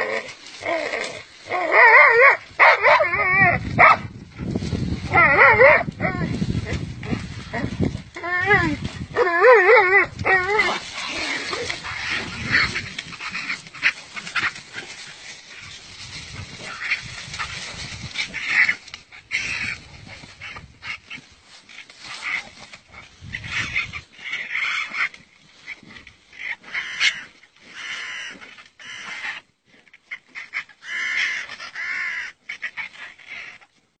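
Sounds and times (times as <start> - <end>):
scuffling in dry leaves: 0.0 - 3.4, 4.1 - 27.8
dogs snarling: 5.0 - 21.2
animal squealing: 7.6 - 14.6.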